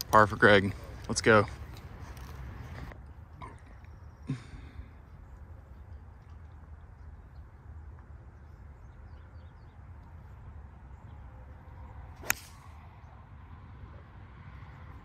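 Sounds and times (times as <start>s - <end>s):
golf club striking ball: 12.2s - 12.6s.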